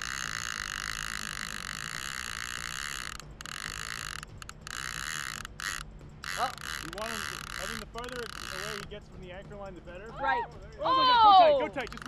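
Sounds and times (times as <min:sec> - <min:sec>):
fishing reel clicker buzzing: 0:00.0 - 0:09.0, 0:11.7 - 0:12.0.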